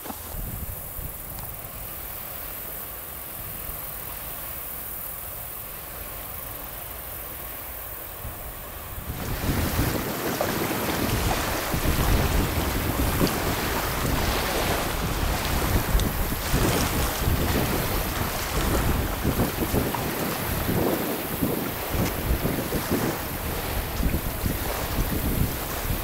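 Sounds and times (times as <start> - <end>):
wind buffeting microphone: 0.2 - 1.5, 8.2 - 26.0.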